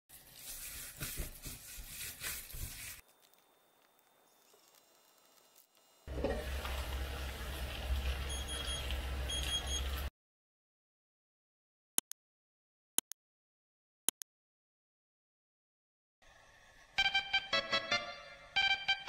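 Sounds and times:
hand kneading filling in metal bowl: 0:00.1 - 0:03.2
frying pan sizzling: 0:06.1 - 0:10.1.

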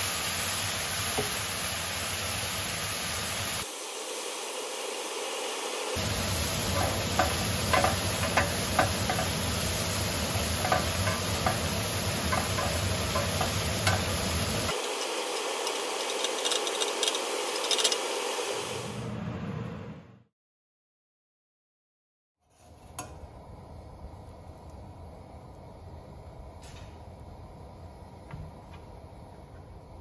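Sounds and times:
vegetables sizzling in a grill pan: 0:00.0 - 0:04.4, 0:05.2 - 0:18.5
metal tongs clicking and scraping: 0:10.6 - 0:14.2.

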